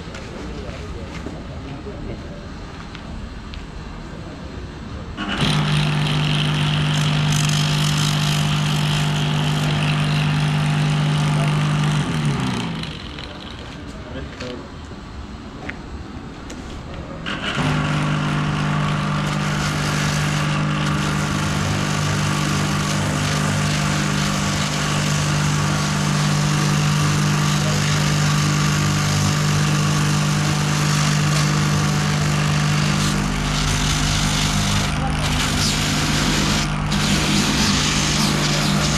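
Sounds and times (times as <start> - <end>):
rotary buffing tool grinding rubber: 5.2 - 13.9, 17.2 - 38.9.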